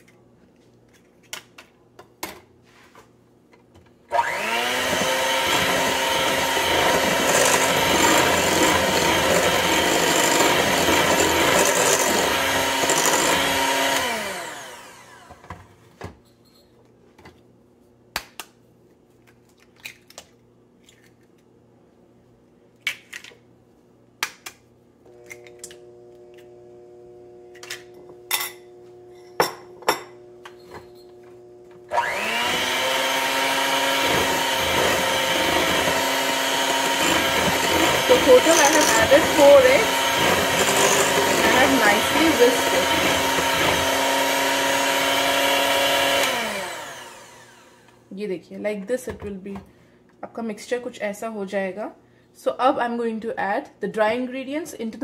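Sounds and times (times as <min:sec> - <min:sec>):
electric hand mixer running: 0:04.1 - 0:15.5, 0:25.1 - 0:29.1, 0:31.4 - 0:48.0.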